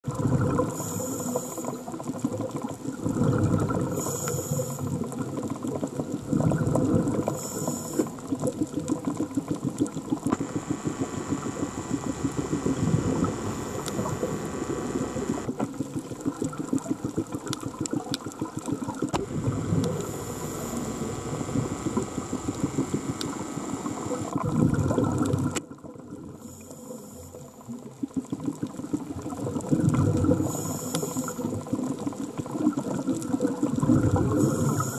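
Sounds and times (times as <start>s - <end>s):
exhaled bubbles rushing: 0.0s - 26.5s, 27.6s - 34.9s
steady humming tone: 0.7s - 1.9s, 10.3s - 15.6s, 19.1s - 24.7s, 30.4s - 31.5s, 34.2s - 34.9s
regulator hiss on inhale: 0.7s - 2.0s, 3.9s - 5.1s, 7.2s - 8.3s, 10.4s - 15.5s, 19.2s - 24.3s, 26.4s - 27.8s, 30.4s - 31.8s, 34.3s - 34.9s.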